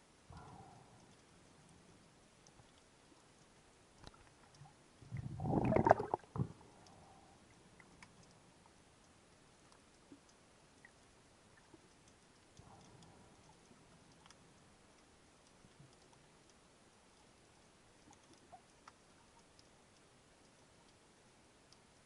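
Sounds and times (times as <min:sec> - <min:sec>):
faint clicks: 0:00.2 - 0:22.0
underwater gurgling rumble: 0:05.0 - 0:08.0.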